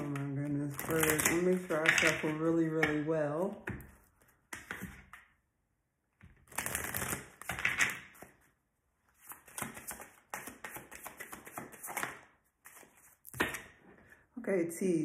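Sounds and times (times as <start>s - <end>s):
cards shuffling: 0.0s - 2.9s, 6.5s - 8.4s, 9.2s - 13.7s.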